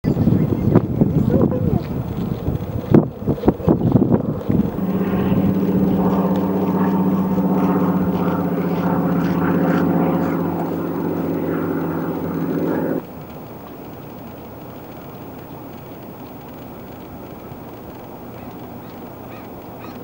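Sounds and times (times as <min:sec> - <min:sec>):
water pump engine drone: 0:04.2 - 0:18.2.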